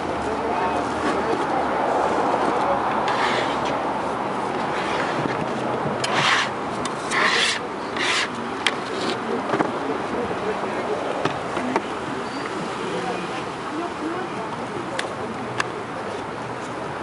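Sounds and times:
short scrapes: 3.0 - 3.8, 6.0 - 9.2.

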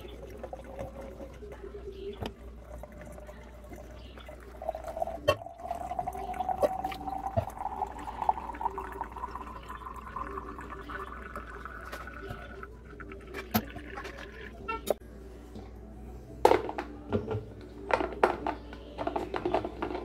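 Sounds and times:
coffee pouring into carafe: 0.0 - 15.0.

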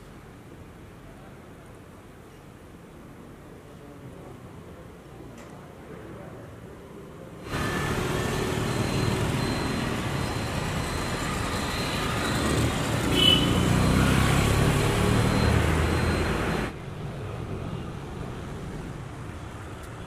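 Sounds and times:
vehicles passing: 7.4 - 20.0.

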